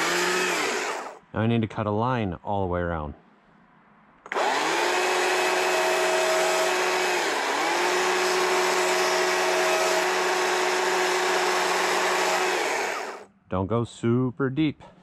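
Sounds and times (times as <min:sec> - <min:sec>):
chainsaw cutting log: 0:00.0 - 0:01.2, 0:04.3 - 0:13.3.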